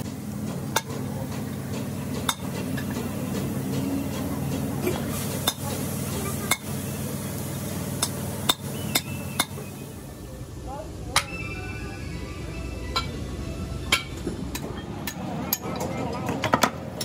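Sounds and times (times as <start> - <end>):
low workshop hum: 0.0 - 17.0.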